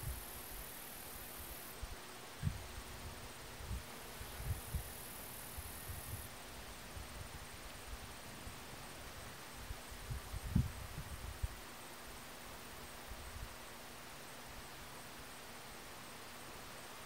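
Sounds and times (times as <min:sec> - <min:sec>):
steady hiss: 0:00.0 - 0:17.0
thin high buzz: 0:03.2 - 0:06.3
wind thumps on microphone: 0:10.1 - 0:11.6.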